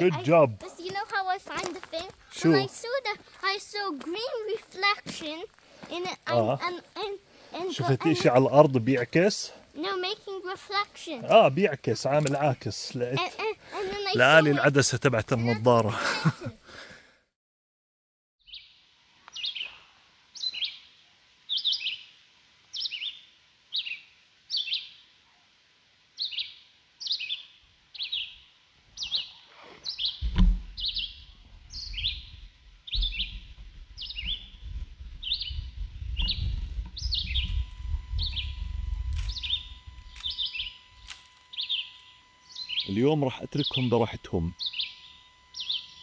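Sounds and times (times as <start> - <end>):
bird chirping: 18.4 - 25.2, 26.2 - 46.0.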